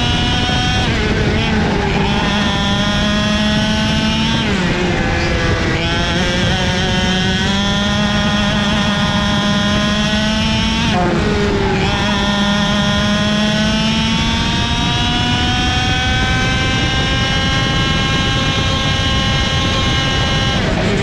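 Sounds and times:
kart engine at full throttle: 0.0s - 21.0s.

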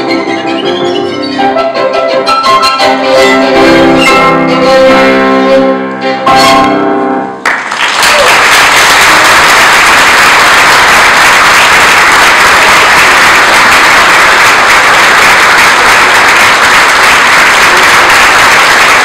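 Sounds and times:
audience applauding: 7.4s - 19.0s.

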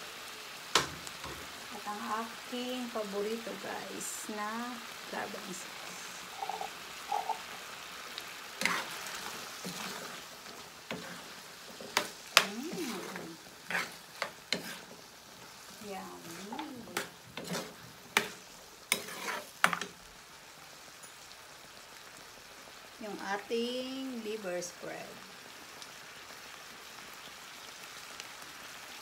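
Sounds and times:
stew sizzling: 0.0s - 29.0s
metal ladle scraping a pan: 8.6s - 10.2s, 12.8s - 15.0s, 16.3s - 19.9s.

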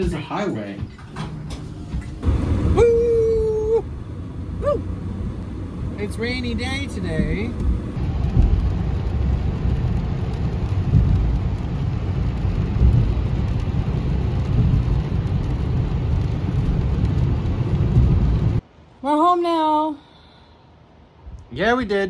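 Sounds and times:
road and tyre rumble: 0.0s - 22.0s
rain and spray on car: 1.6s - 18.9s.

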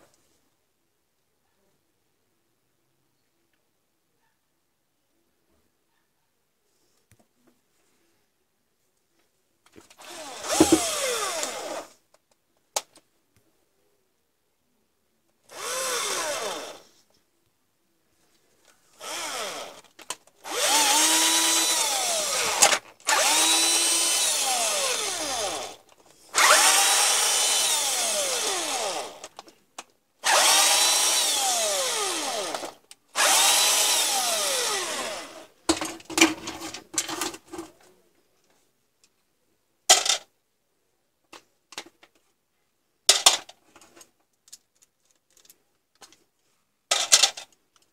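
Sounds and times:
cordless drill whining: 10.0s - 12.0s, 15.5s - 16.9s, 19.0s - 29.4s, 30.2s - 35.5s
clicks and rattles: 46.9s - 47.9s.

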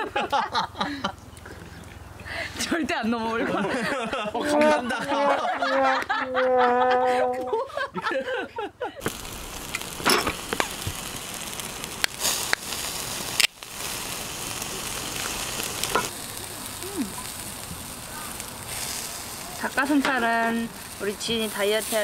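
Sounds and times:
fire crackling and popping: 9.0s - 22.0s
meat sizzling on a grill: 9.0s - 22.0s.

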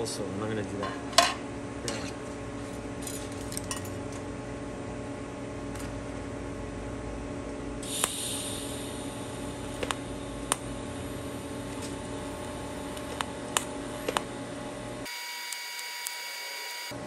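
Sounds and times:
welder electrical hum: 0.0s - 17.0s
welding arc snaps: 7.8s - 8.9s, 9.6s - 10.8s, 12.9s - 14.3s, 15.1s - 17.0s
welder hiss: 7.8s - 13.1s.

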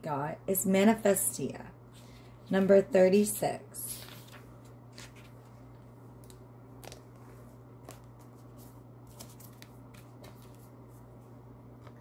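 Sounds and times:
low electrical hum: 0.0s - 12.0s
cards clicking and rustling: 6.2s - 7.2s.

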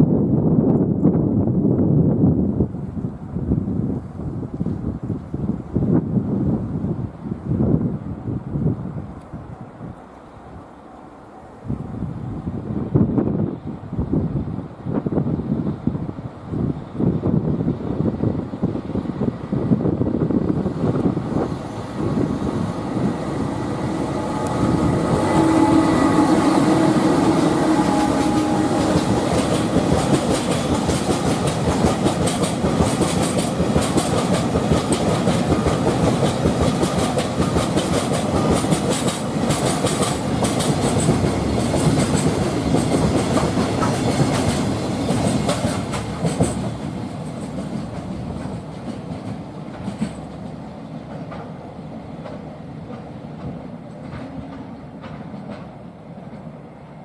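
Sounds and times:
electric locomotive tones: 16.5s - 32.0s
train wheels clacking over rail joints: 23.7s - 56.5s.

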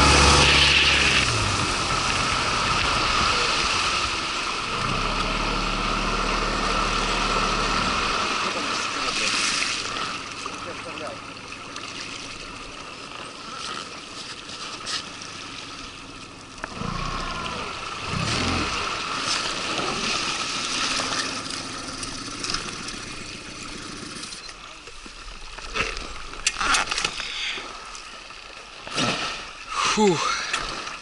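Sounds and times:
outboard motor running: 0.0s - 27.1s
water rushing past hull: 0.0s - 31.0s.

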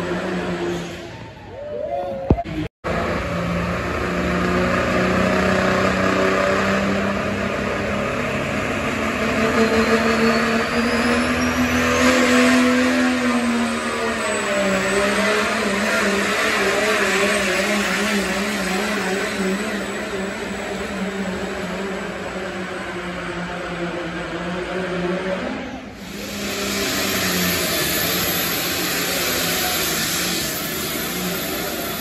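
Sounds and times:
truck engine revving hard: 0.0s - 1.1s, 2.9s - 32.0s
high whine rising in pitch: 26.0s - 32.0s.

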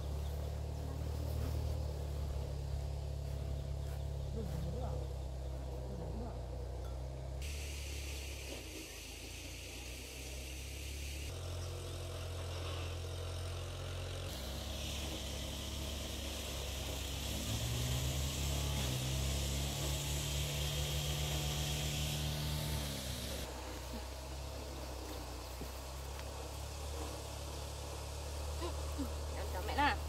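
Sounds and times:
motor engine humming: 0.0s - 30.0s
steady high hiss: 7.4s - 11.4s, 14.3s - 30.0s.

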